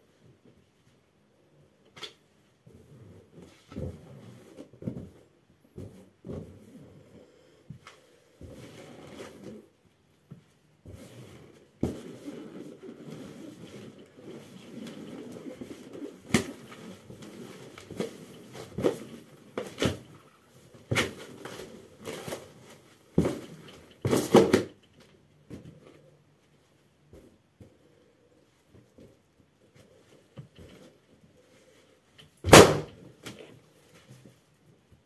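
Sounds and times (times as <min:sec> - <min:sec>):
balloon sharp smacks: 0:32.4 - 0:32.9.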